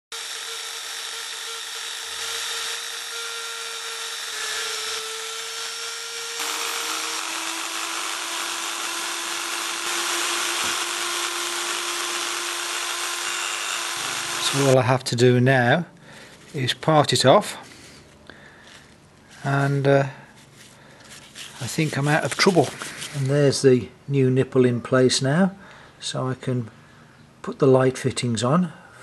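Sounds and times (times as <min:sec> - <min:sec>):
drill bit cutting metal: 0:00.1 - 0:14.8
drill press motor hum: 0:00.1 - 0:14.8.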